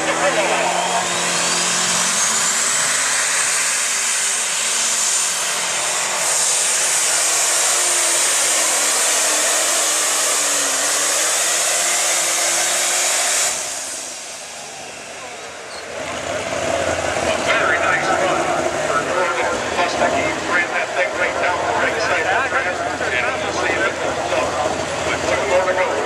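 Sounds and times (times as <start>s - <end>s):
high turbo whine: 0.0s - 26.0s
tractor engine running under load: 14.7s - 26.0s.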